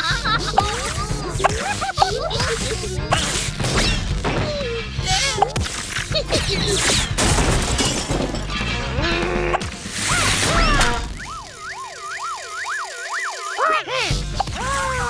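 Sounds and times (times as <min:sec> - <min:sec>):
cartoon music: 0:09.0 - 0:15.0
warbling siren-like tone: 0:10.5 - 0:13.8.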